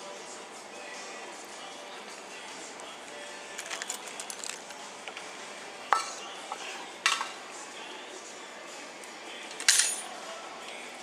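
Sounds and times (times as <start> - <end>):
hard objects clinking together: 3.5 - 4.8, 9.5 - 10.1.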